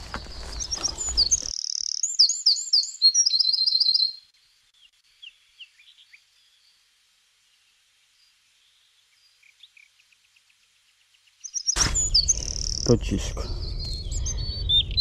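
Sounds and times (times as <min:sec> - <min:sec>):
microphone handling rustle: 0:00.0 - 0:01.5
songbird singing: 0:00.0 - 0:15.0.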